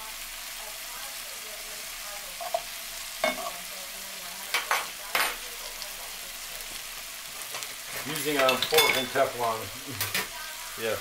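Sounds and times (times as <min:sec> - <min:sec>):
food sizzling in a skillet: 0:00.0 - 0:11.0.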